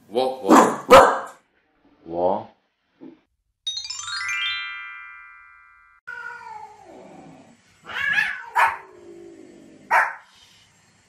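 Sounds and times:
dog barking: 0.4s - 1.4s, 8.2s - 8.9s, 9.9s - 10.3s.

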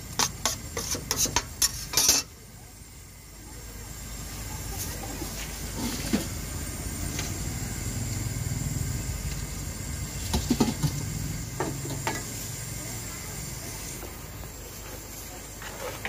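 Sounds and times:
food sizzling on hot griddle: 0.0s - 16.0s
road traffic engine hum: 3.1s - 15.7s.

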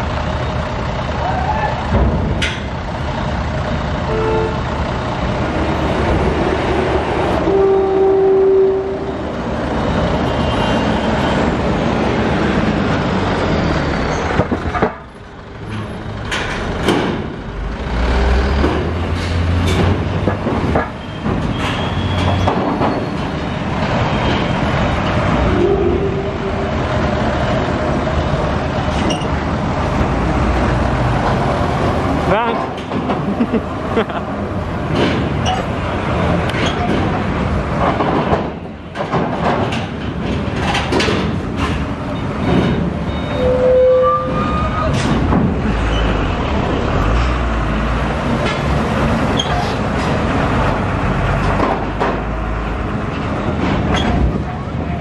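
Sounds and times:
diesel trucks running: 0.0s - 55.0s
short horn toots: 4.1s - 4.6s, 25.5s - 26.7s.

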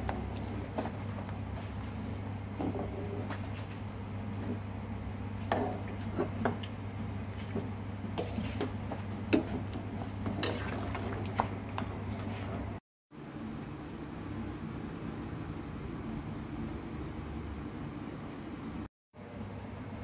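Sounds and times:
boiling broth stirred: 0.0s - 12.8s.

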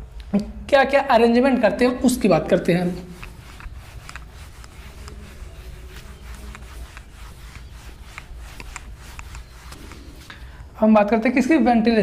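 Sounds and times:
duster scraping on whiteboard: 2.0s - 10.6s.

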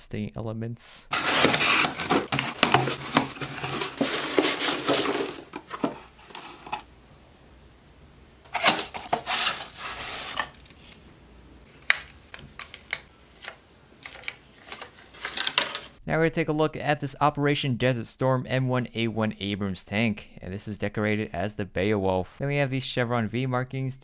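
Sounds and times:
cardboard rustling: 1.1s - 6.9s, 8.5s - 11.1s, 11.7s - 16.0s
box cutter slicing packing tape: 1.2s - 5.4s.

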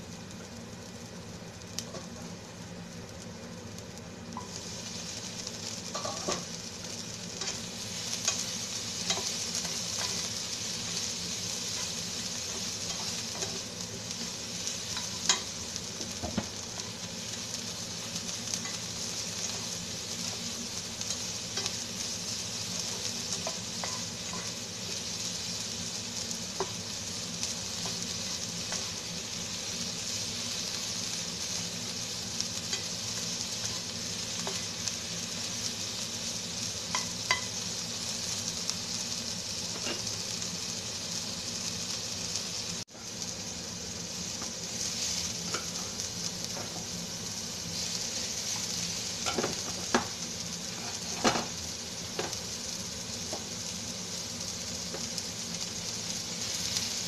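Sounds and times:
food sizzling in frying pan: 0.0s - 57.0s.

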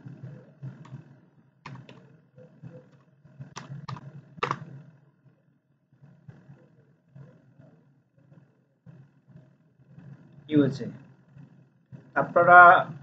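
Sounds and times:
keyboard keystrokes: 1.7s - 2.0s, 3.6s - 4.7s.

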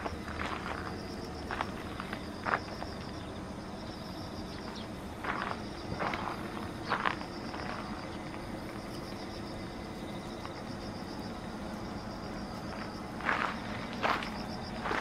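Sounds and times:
scuffs on gravel: 0.0s - 3.2s, 4.6s - 8.6s, 12.5s - 15.0s
insects trilling: 0.0s - 15.0s.

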